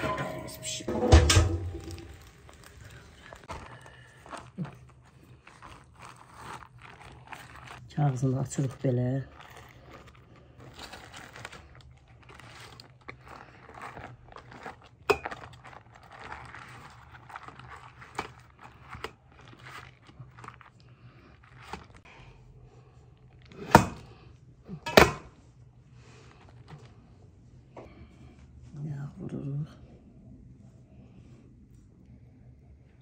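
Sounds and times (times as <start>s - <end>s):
food crunching and scraping: 0.0s - 28.3s.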